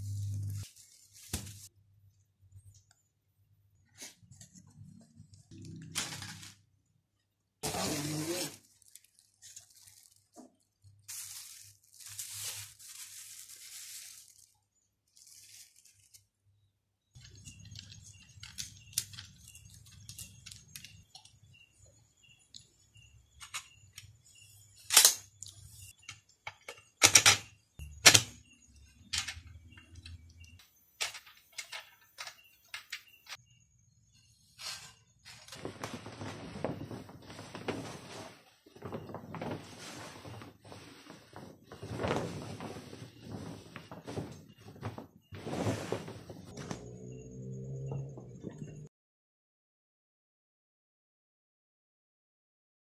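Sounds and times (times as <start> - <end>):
plastic wrapping rustling and tearing: 0.0 - 1.7, 5.6 - 6.6, 7.6 - 16.4
metal tubes clicking and knocking: 24.9 - 33.4.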